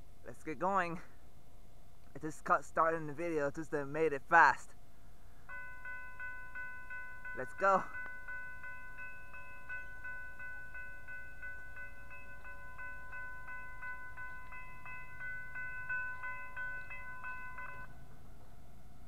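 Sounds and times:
crossing warning bell ringing: 5.5s - 19.0s.

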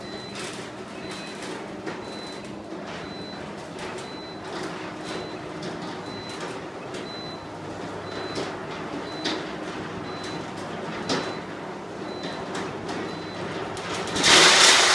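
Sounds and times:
roller shutter rolling down: 12.3s - 14.9s.

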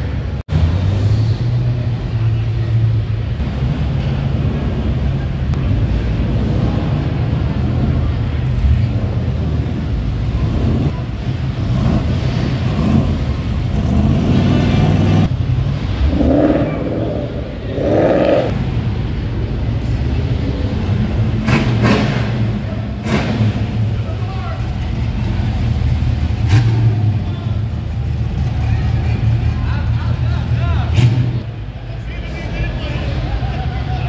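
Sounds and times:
car engines rumbling: 0.0s - 34.0s
engine revs: 0.5s - 19.2s, 19.8s - 31.5s.

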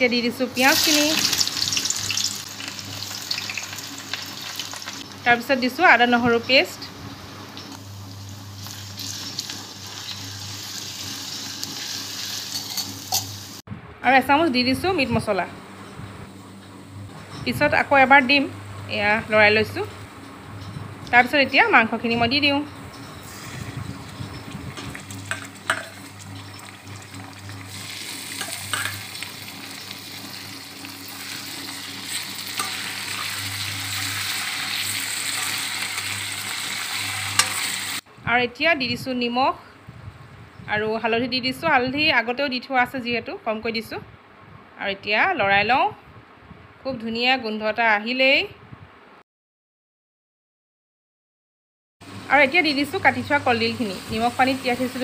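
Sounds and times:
onions sizzling in hot oil: 0.6s - 5.2s, 7.5s - 13.6s, 23.2s - 38.0s, 52.1s - 55.0s
metal spatula scraping pan: 37.0s - 37.9s.

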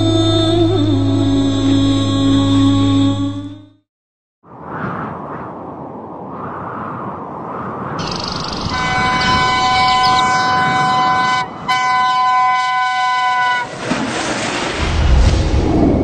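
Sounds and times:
rumble of passing train: 8.0s - 16.0s
locomotive air horn blasts: 8.7s - 13.8s.

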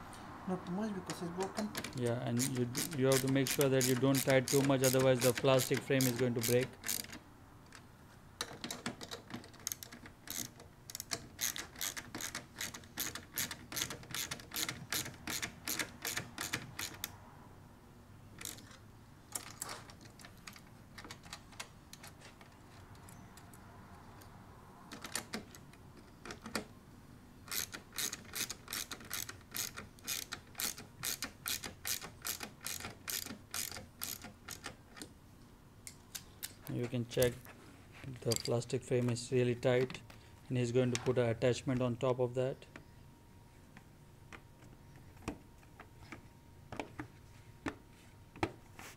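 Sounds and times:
ratchet handle clicking: 1.7s - 7.2s, 8.5s - 17.1s, 27.5s - 34.8s.

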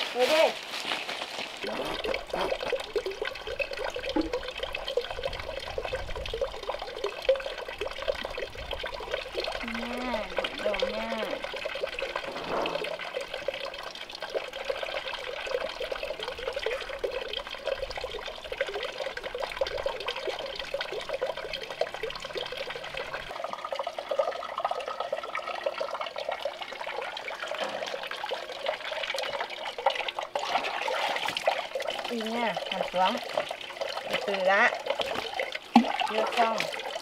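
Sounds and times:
water running from pipe: 0.0s - 37.0s
small water splashes: 24.7s - 37.0s.

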